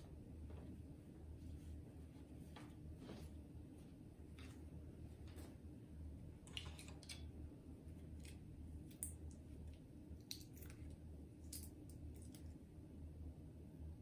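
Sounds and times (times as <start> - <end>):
low steady hum: 0.0 - 14.0
chopsticks clicking and rustling: 6.5 - 7.3, 8.0 - 12.6.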